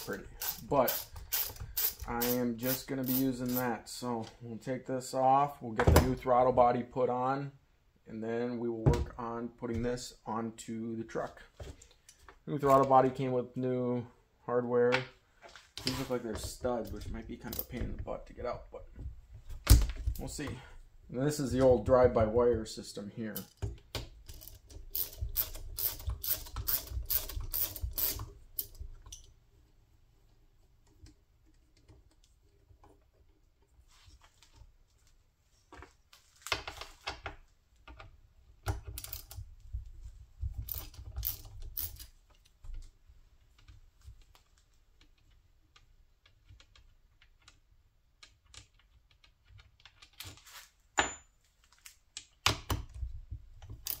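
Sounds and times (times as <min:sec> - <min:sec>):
hand ratchet clicking: 0:00.0 - 0:03.7, 0:24.3 - 0:28.8, 0:40.7 - 0:42.1.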